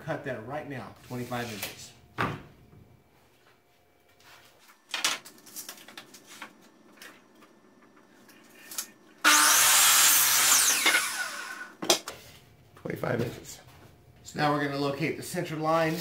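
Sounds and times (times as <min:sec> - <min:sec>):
saw blade winding down whine: 0:08.8 - 0:11.8
miter saw cutting wood: 0:09.2 - 0:11.8.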